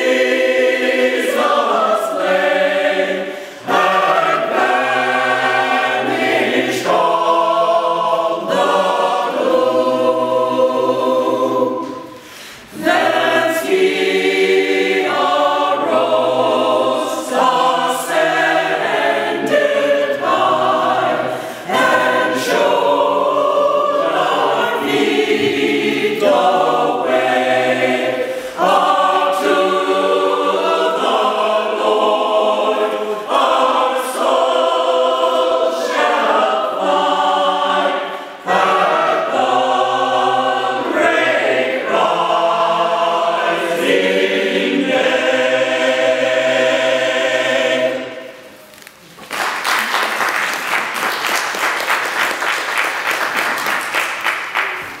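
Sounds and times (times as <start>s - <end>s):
mixed choir singing: 0.0s - 48.6s
audience applauding: 49.1s - 55.0s.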